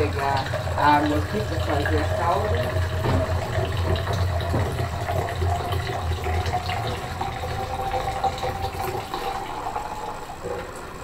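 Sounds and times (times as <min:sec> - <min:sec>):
tap water filling cup: 0:00.0 - 0:11.0.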